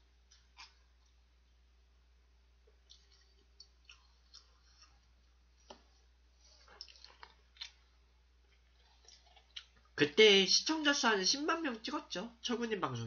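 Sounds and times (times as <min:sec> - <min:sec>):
low steady hum: 0:00.0 - 0:13.0
mouth chewing noodles: 0:02.7 - 0:05.5, 0:06.4 - 0:10.0.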